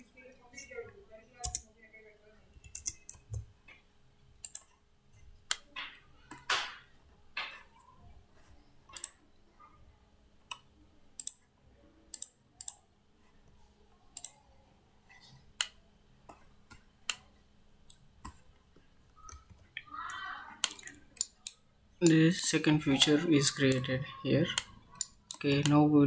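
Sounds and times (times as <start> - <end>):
computer mouse clicks: 1.4 - 1.6, 2.6 - 3.4, 4.4 - 4.7, 8.9 - 9.2, 10.5 - 11.4, 12.1 - 12.8, 14.1 - 14.4, 19.2 - 22.5, 24.5 - 25.8.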